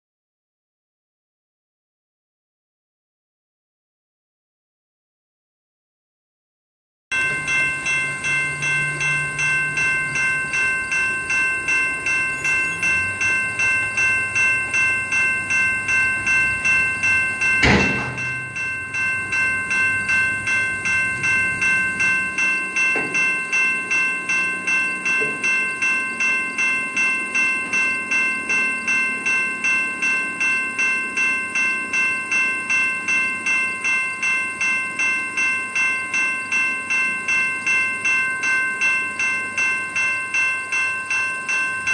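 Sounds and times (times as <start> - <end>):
level crossing bell ringing: 7.1 - 41.9
sharp loud knock: 17.6 - 18.3.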